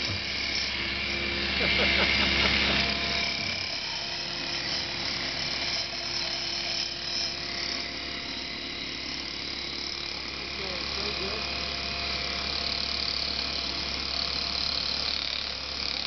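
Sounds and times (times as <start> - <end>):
excavator diesel engine: 0.0 - 5.7, 7.3 - 16.0
high hydraulic whine: 0.0 - 16.0.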